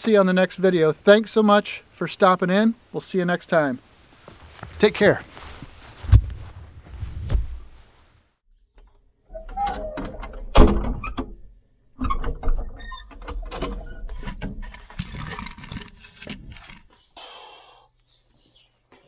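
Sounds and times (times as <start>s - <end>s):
log scraping into firebox: 4.2s - 8.2s.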